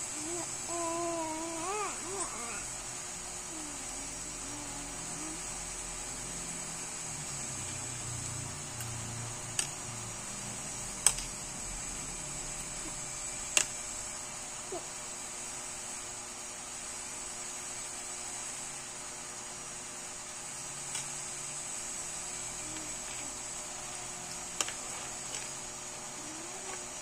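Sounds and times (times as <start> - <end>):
steady background hiss: 0.0 - 27.0.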